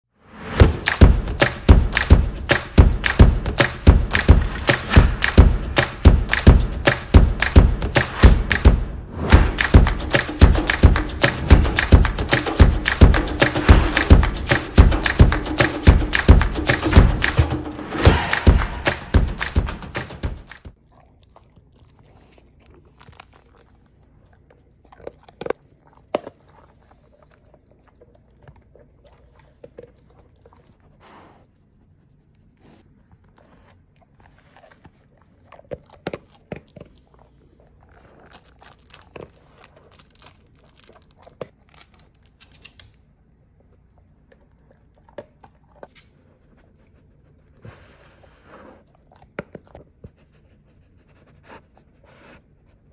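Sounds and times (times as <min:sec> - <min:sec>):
dog crunching kibble: 0:20.9 - 0:30.6, 0:34.0 - 0:42.9.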